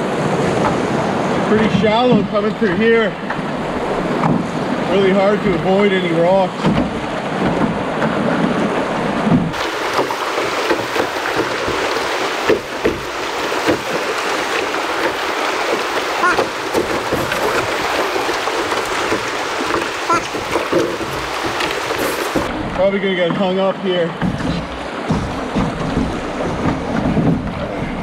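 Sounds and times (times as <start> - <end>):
water rushing over rapid: 0.0 - 28.0
sharp knocks on canoe: 4.2 - 4.6, 6.5 - 22.5, 24.2 - 27.9.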